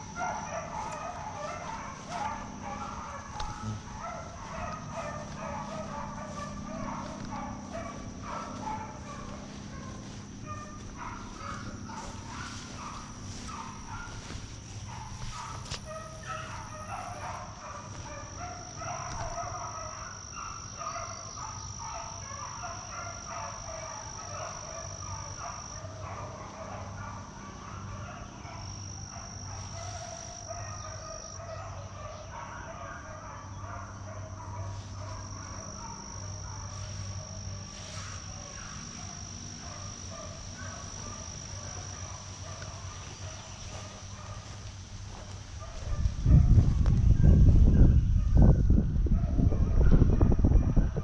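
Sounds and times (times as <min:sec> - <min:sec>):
high insect buzz: 0:00.0 - 0:32.4, 0:34.0 - 0:47.0
distant hounds baying: 0:00.0 - 0:51.0.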